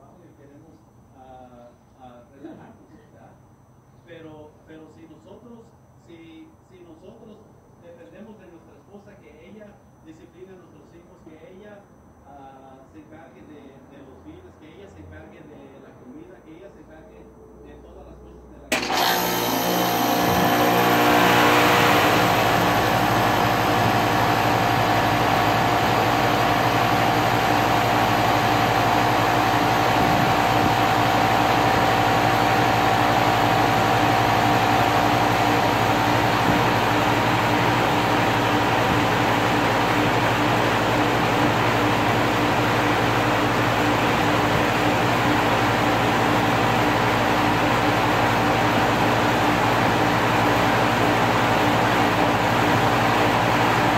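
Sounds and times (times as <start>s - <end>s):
air conditioner humming: 0.0s - 53.9s.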